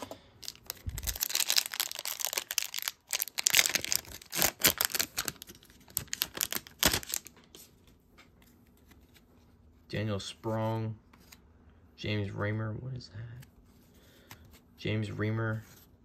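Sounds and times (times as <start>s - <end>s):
foil wrapper crinkling and tearing: 0.4s - 7.3s.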